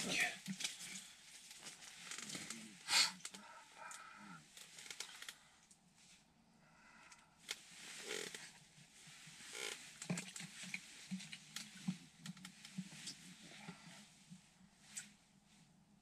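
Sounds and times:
clothing rustling: 0.0s - 2.8s, 7.5s - 15.6s.

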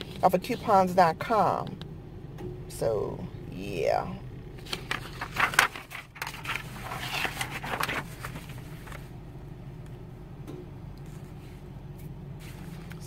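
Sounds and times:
car engine idling: 0.0s - 13.0s
paper rustling: 4.6s - 9.1s, 12.4s - 13.0s.

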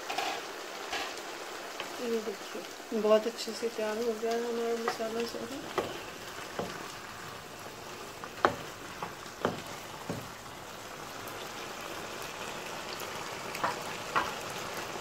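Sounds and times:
food sizzling in frying pan: 0.0s - 15.0s
wooden spatula knocking on pan: 4.8s - 6.9s, 8.4s - 10.4s, 13.6s - 14.4s.

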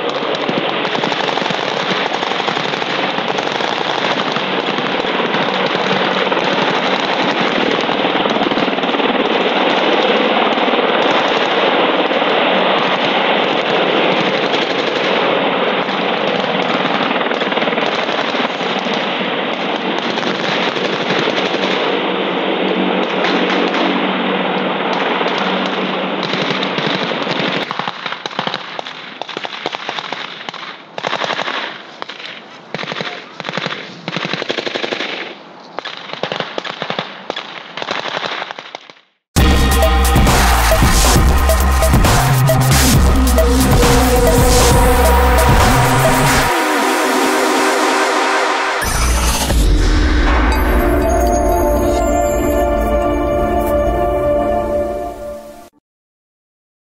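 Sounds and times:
rifle and machine-gun fire: 0.0s - 39.0s
dense rapid noise: 39.4s - 55.1s
low hum: 39.4s - 55.7s.

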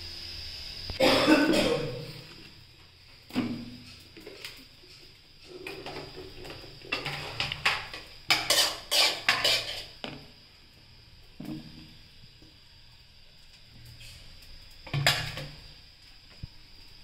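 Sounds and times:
plates clattering: 6.9s - 10.0s.

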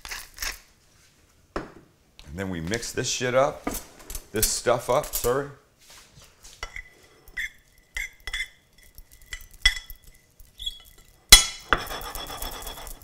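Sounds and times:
fork clinking against ceramic bowl: 6.6s - 10.2s.

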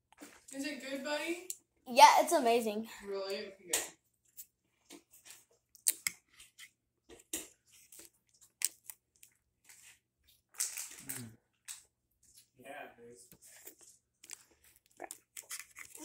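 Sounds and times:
spoon clicks and scrapes: 5.8s - 6.7s, 13.6s - 16.0s
crunching bite of cake: 10.8s - 11.4s
chewing and mouth noises: 13.7s - 16.0s.

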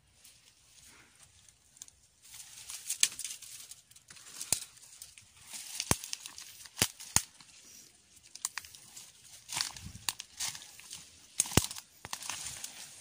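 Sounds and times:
twigs snapping: 1.4s - 13.0s
footsteps crunching dry leaves: 2.2s - 13.0s.

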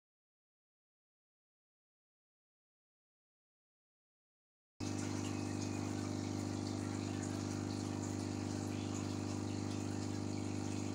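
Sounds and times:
aquarium air pump hum: 4.8s - 10.9s
water bubbling from air stone: 4.8s - 10.9s.

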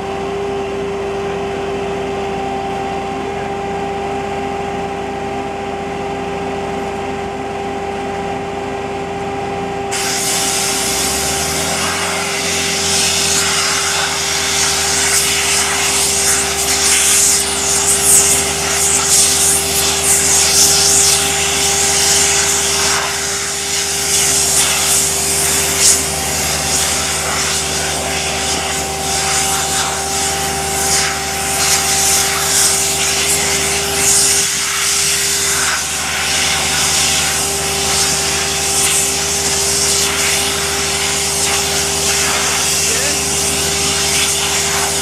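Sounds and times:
machine engine hum: 0.0s - 45.0s
suction air rushing hiss: 9.9s - 45.0s.

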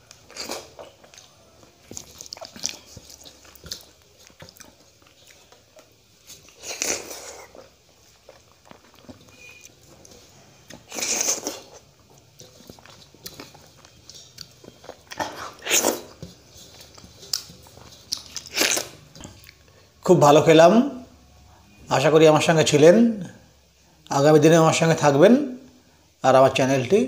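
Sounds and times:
wet chewing and lip smacks: 0.0s - 19.7s.

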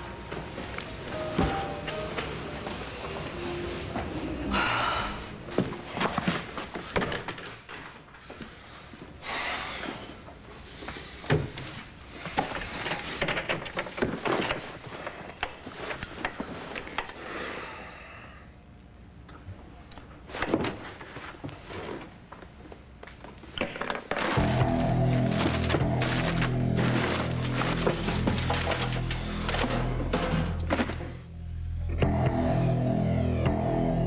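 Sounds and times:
papers rustling: 5.5s - 8.3s, 24.1s - 31.2s
objects knocking and clunking: 23.5s - 31.2s.

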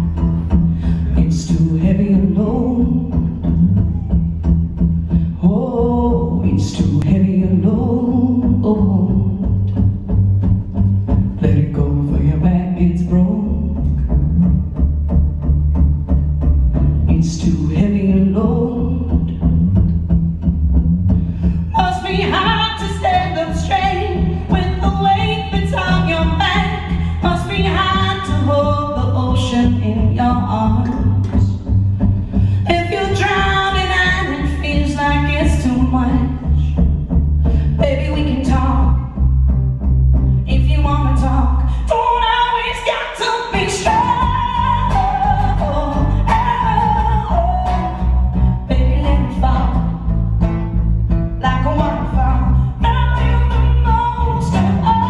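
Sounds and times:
bass: 0.0s - 55.0s
woman singing: 1.0s - 4.3s, 5.3s - 9.9s, 11.3s - 14.0s, 17.1s - 19.5s, 21.6s - 31.8s, 32.5s - 36.8s, 37.6s - 39.2s, 40.4s - 50.2s, 51.4s - 55.0s.

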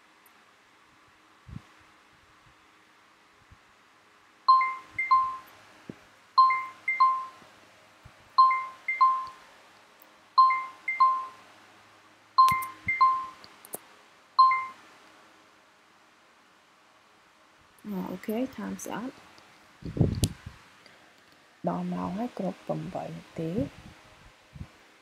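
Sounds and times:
timer alarm chimes: 4.5s - 5.5s, 6.4s - 7.4s, 8.4s - 9.4s, 10.4s - 11.4s, 12.4s - 13.4s, 14.4s - 14.8s.

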